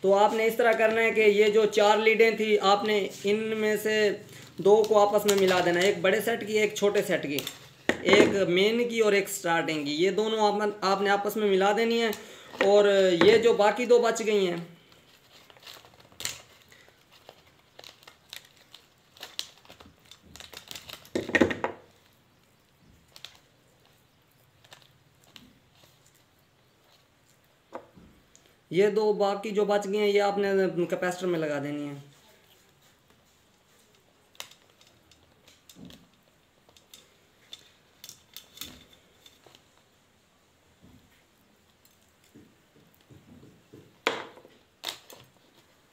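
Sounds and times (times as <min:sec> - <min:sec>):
wire insulation crinkling: 0:00.0 - 0:43.2, 0:43.9 - 0:45.9
handling noise: 0:02.2 - 0:08.8, 0:12.0 - 0:13.8
pliers clattering on wooden bench: 0:07.4 - 0:08.4, 0:43.9 - 0:44.5.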